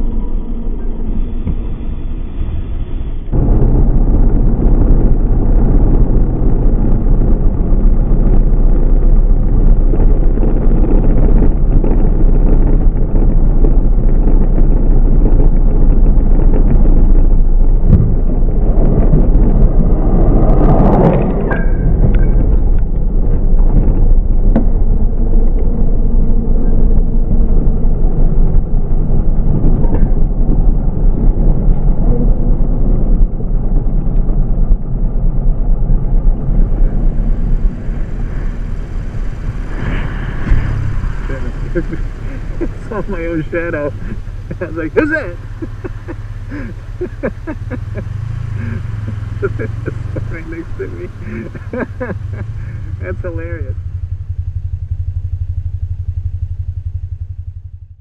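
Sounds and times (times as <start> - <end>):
slowed motorcycle engine rumble: 0.0 - 58.0
wind noise: 0.0 - 58.0
loud crash burst: 3.0 - 7.5, 36.0 - 46.5.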